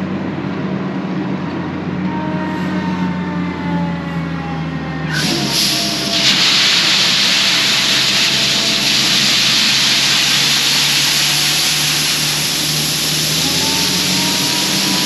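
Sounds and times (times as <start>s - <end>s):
combine engine running: 5.1s - 15.0s
grain kernels pouring: 5.2s - 15.0s.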